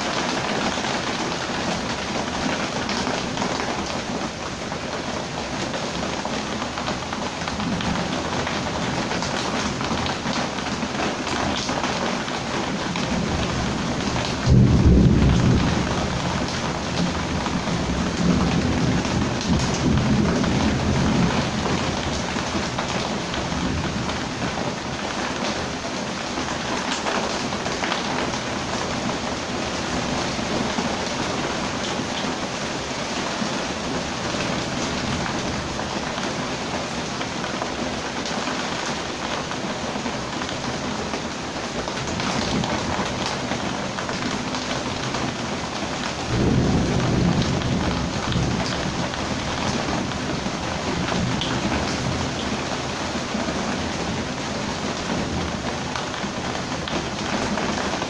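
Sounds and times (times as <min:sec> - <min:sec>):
heavy rain: 0:00.0 - 0:58.0
thunder rumble: 0:13.0 - 0:24.3, 0:46.2 - 0:52.5.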